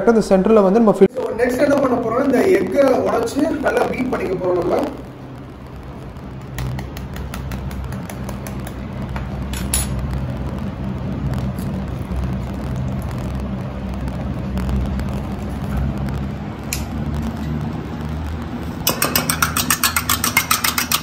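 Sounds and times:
steady low hum: 0:00.9 - 0:21.0
egg cracking and beating in bowl: 0:05.8 - 0:21.0.

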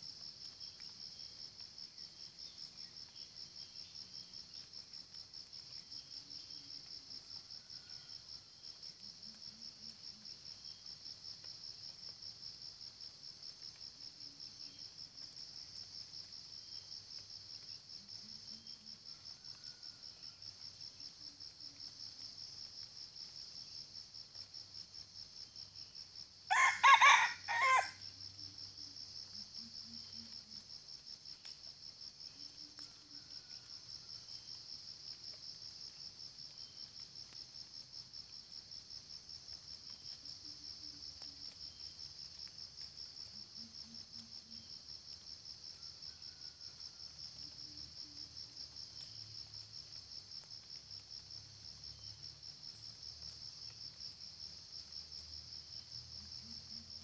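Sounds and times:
insects buzzing: 0:00.0 - 0:57.0
rooster crowing: 0:26.5 - 0:28.1.

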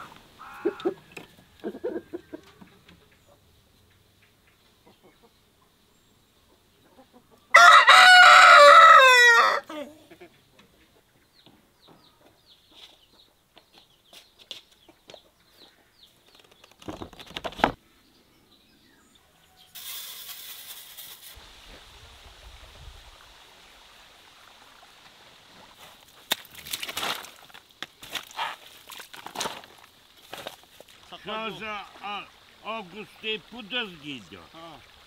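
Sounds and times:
chickens clucking: 0:00.0 - 0:05.8, 0:06.4 - 0:07.5, 0:09.9 - 0:13.9
small birds chirping: 0:02.2 - 0:07.5, 0:10.0 - 0:19.8.

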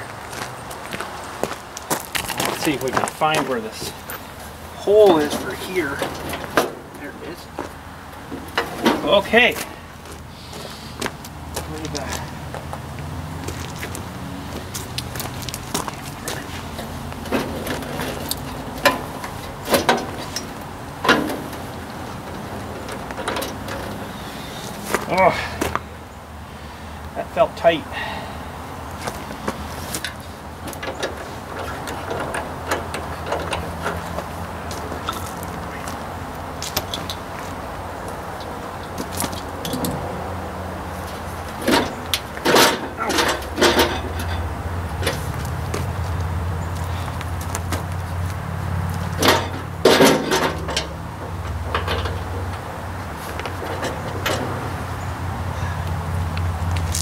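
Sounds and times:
metal clanks and rattles of tools: 0:02.2 - 0:07.6, 0:08.3 - 0:09.4, 0:15.5 - 0:25.8, 0:29.8 - 0:35.6, 0:38.4 - 0:40.0, 0:41.0 - 0:45.9, 0:49.0 - 0:52.6, 0:53.2 - 0:54.9.

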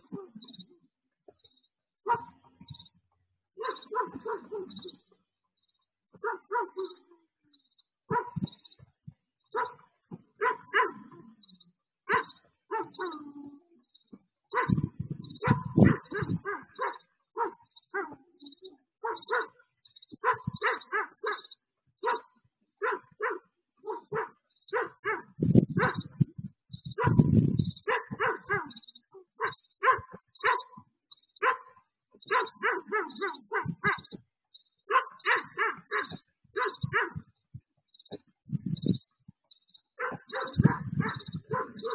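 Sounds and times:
dog barking: 0:00.0 - 0:00.5, 0:02.1 - 0:02.8, 0:03.6 - 0:05.1, 0:06.2 - 0:07.2, 0:08.1 - 0:08.6, 0:09.5 - 0:11.4, 0:12.1 - 0:13.4, 0:14.5 - 0:34.2, 0:34.8 - 0:37.4, 0:39.8 - 0:41.9.

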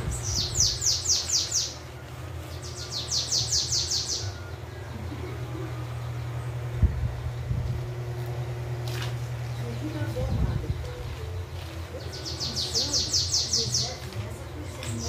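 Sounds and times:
bird singing high downward notes: 0:00.0 - 0:07.6.

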